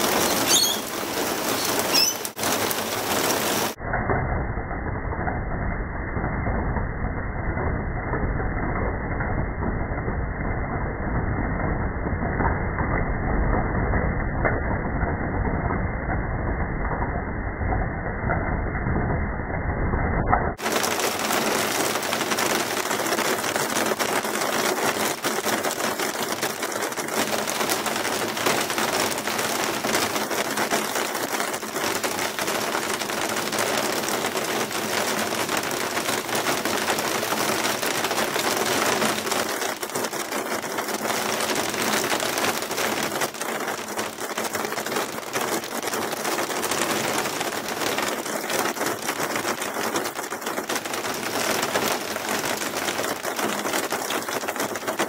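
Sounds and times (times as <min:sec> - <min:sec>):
hail and rain on roof tiles: 0:00.0 - 0:03.8, 0:20.6 - 0:55.0.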